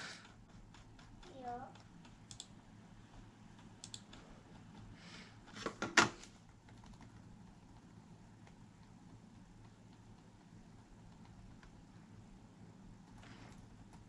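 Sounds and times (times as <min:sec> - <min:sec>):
laptop keys clicking: 0:00.1 - 0:05.0, 0:06.4 - 0:11.9.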